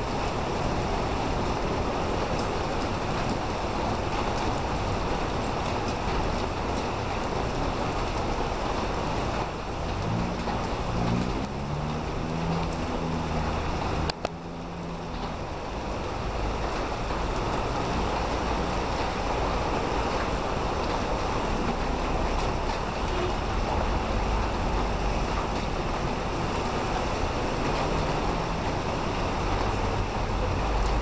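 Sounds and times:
heavy rain falling: 0.0 - 31.0
truck driving past on wet road: 7.9 - 31.0.

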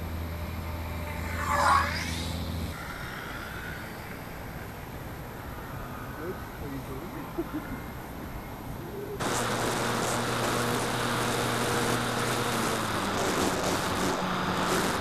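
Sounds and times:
electric motor humming: 9.2 - 15.0.

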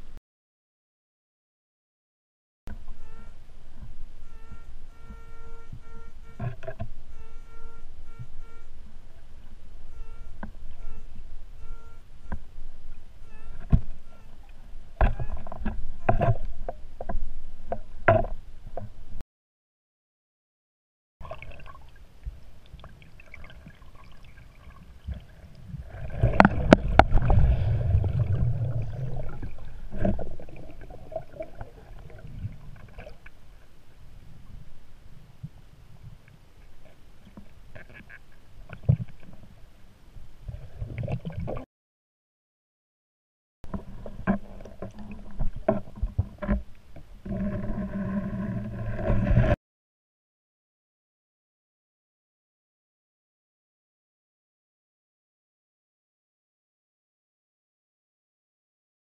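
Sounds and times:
faint underwater crackling and ticking: 2.7 - 19.2, 21.2 - 41.6, 43.7 - 49.6
underwater knocks and clicks: 13.6 - 19.0, 26.2 - 33.4, 37.3 - 39.5, 43.7 - 49.6
loud low underwater rumble: 25.8 - 32.7.

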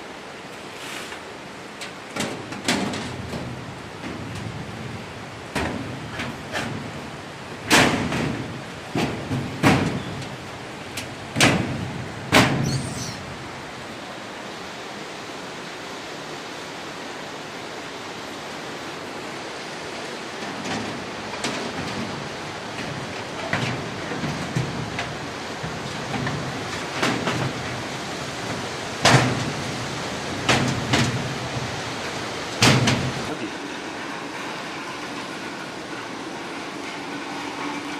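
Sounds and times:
steady background hiss: 0.0 - 37.9
metal knocks and clanks: 1.8 - 13.0, 20.4 - 29.7, 30.4 - 31.8, 32.6 - 33.4
metal locker bangs and clanks: 2.1 - 4.6, 7.6 - 10.3, 11.3 - 13.0, 29.0 - 29.6, 30.4 - 31.3, 32.6 - 33.2.

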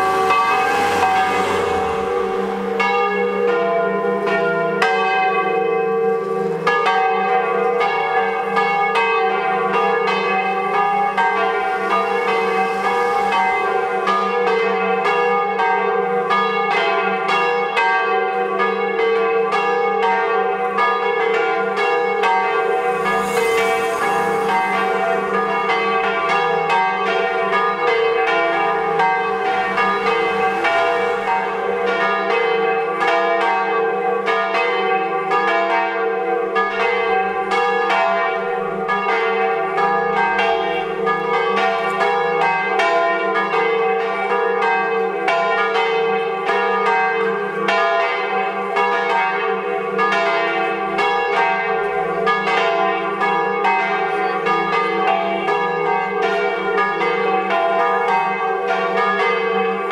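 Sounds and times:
church bells pealing: 0.0 - 59.9.

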